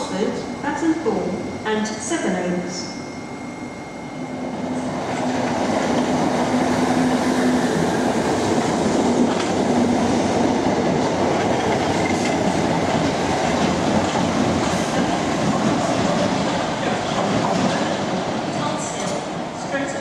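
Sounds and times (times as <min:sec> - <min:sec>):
train wheels rumbling on rails: 0:04.6 - 0:20.0.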